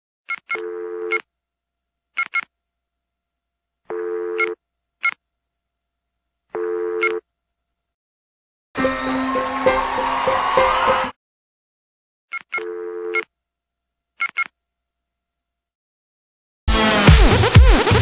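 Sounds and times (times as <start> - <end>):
low steady telephone tone: 0.6 - 1.2, 3.9 - 4.6, 6.6 - 7.2, 12.6 - 13.2.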